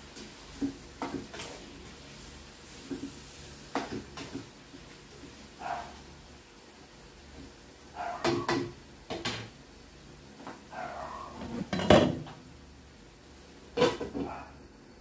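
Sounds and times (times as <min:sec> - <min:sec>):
pots and utensils clattering: 0:11.3 - 0:12.4, 0:13.7 - 0:14.4.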